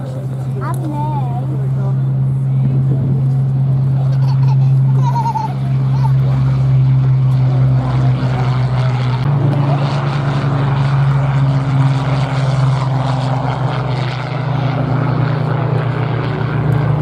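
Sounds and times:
propeller plane engine drone: 0.0 - 17.0.

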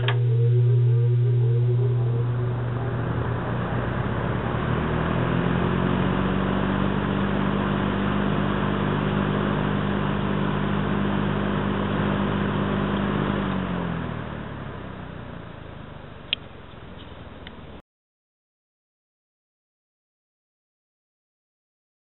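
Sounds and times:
box fan running: 0.0 - 17.8.

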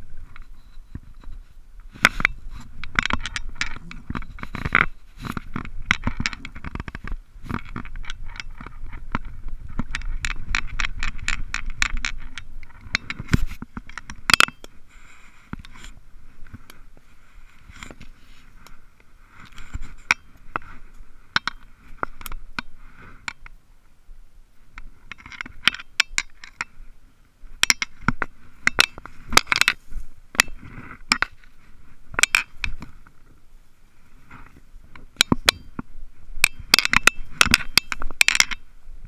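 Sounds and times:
fishing reel clicks and scrapes: 36.4 - 38.6.

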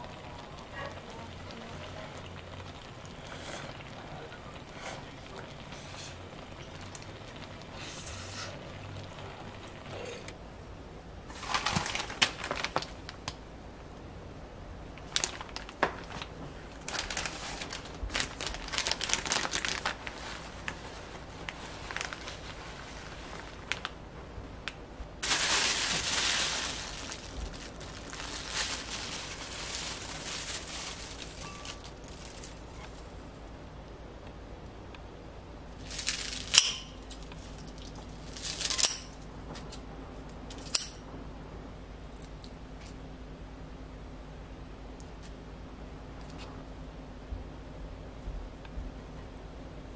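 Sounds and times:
plastic bag rustling: 11.3 - 13.3, 15.1 - 24.0, 25.2 - 33.6, 35.7 - 39.2.

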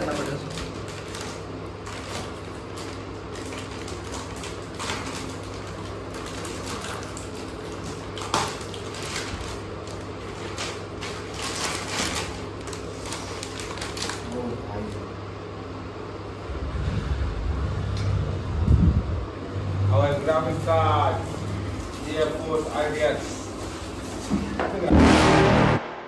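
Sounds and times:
packaging rustling and scraping: 0.0 - 14.6
sharp packaging crackle: 0.0 - 15.0
steady low hum: 0.0 - 26.0.

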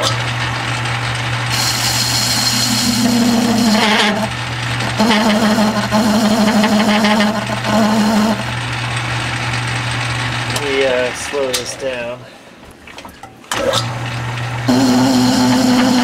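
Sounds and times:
lathe motor hum: 0.0 - 11.6, 13.9 - 16.0
hissing metal cut: 1.5 - 8.8, 14.7 - 16.0.

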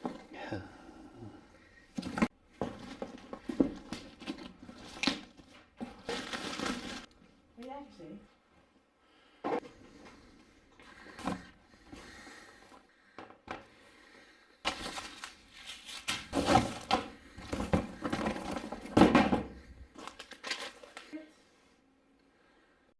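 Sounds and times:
packaging rustling and scraping: 2.0 - 7.1, 14.7 - 19.1, 19.9 - 21.2.

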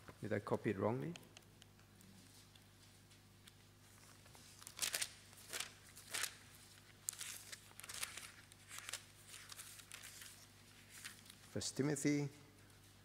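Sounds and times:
thin pages turning: 3.4 - 11.5.

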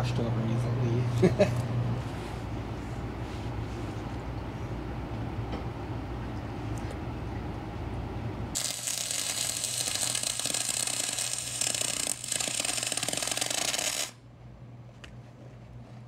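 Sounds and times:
arc welding crackling sizzle: 8.6 - 14.2.

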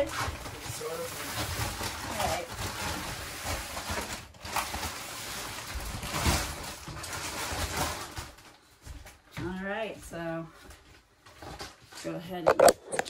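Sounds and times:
plastic wrapping crinkling: 0.0 - 9.1.

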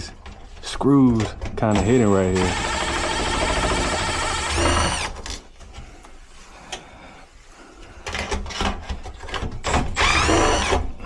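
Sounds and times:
cordless drill running: 1.7 - 5.3, 9.7 - 10.9.

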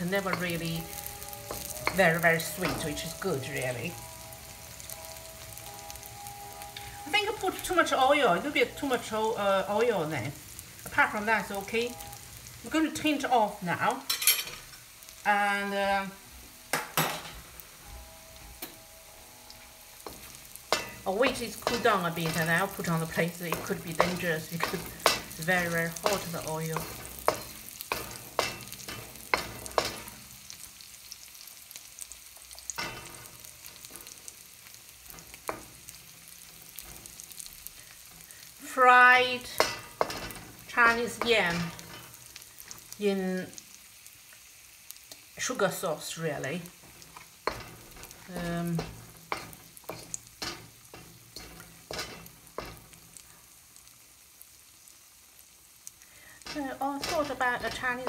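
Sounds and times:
faint oil sizzling: 0.0 - 58.0
wooden spoon scraping a wok: 19.6 - 30.9, 45.5 - 53.9, 56.2 - 58.0
wooden spoon knocking on wok: 20.1 - 30.1.

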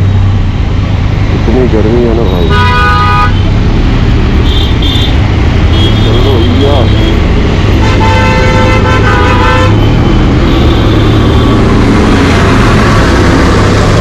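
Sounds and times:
road and wind noise: 0.0 - 14.0
vehicle horn blast: 2.4 - 3.4, 7.8 - 9.9.

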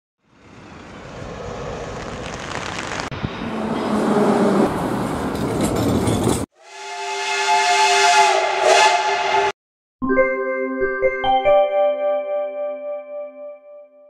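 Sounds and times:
street traffic: 0.2 - 6.5
steam whistle chord: 6.6 - 9.6
electronic keyboard jingle: 10.0 - 13.8.

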